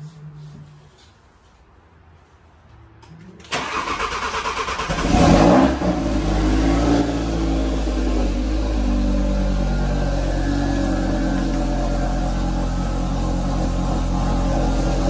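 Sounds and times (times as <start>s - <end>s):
car engine starting and idling: 3.4s - 15.0s.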